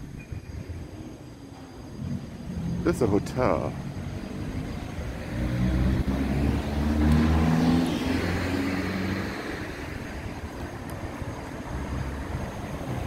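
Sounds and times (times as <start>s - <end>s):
street traffic noise: 0.0s - 13.0s
car accelerating past: 3.8s - 10.4s.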